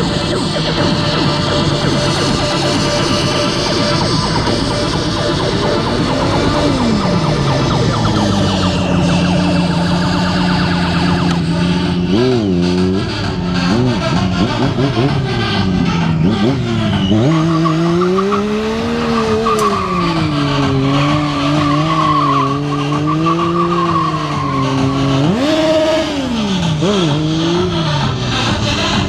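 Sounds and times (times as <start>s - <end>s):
motorcycle engine revving high: 0.0s - 29.0s
tyre squealing on tarmac: 14.0s - 26.6s.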